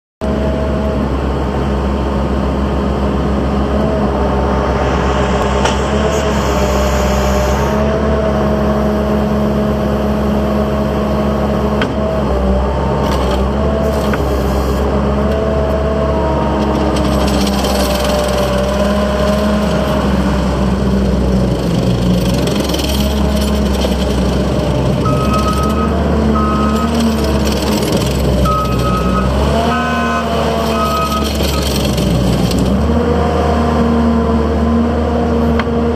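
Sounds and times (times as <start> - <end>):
diesel engine running: 0.2 - 33.2
backup alarm beeps: 25.1 - 27.0.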